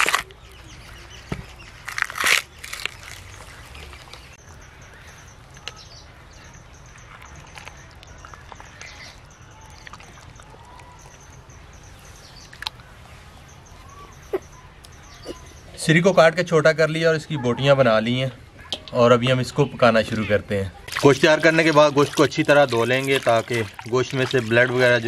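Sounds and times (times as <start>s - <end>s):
bone and gristle crunching: 0.0s - 4.4s, 20.8s - 25.0s
birds chirping: 0.0s - 25.0s
wet meat handling: 20.8s - 25.0s.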